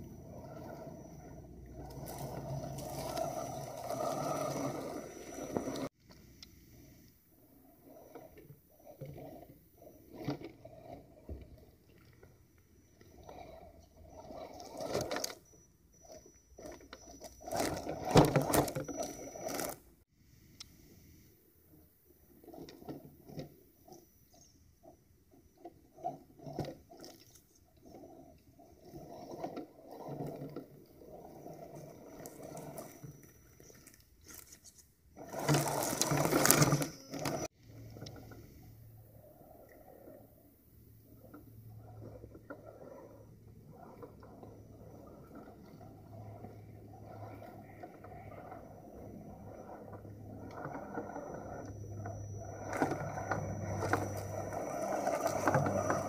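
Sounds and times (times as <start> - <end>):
tires scraping and crunching on wood: 0.0 - 6.0, 6.8 - 20.0, 25.4 - 56.0
faint high electric motor whine: 20.6 - 56.0.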